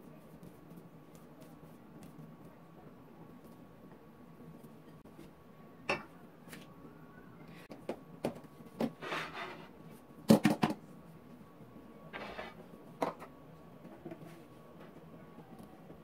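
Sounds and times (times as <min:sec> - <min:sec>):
brushing scrape: 0:09.0 - 0:09.8, 0:12.1 - 0:12.7.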